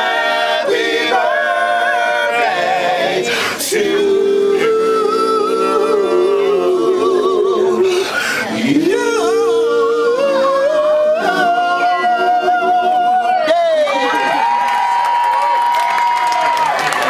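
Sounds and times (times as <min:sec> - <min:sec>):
men singing in harmony: 0:00.0 - 0:13.6.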